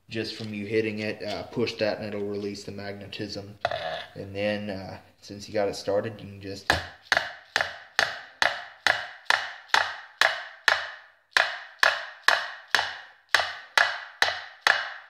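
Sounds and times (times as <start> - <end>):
hammer hitting nail: 6.7 - 15.0.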